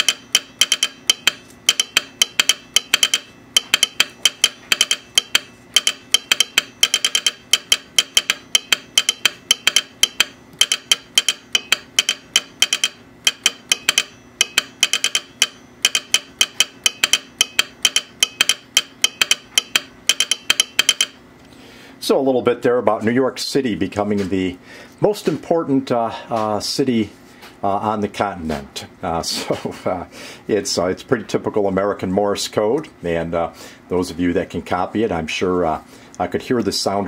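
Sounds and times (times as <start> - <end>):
telegraph sounder clicking: 0.0 - 21.2
faint steady hum: 0.0 - 37.0.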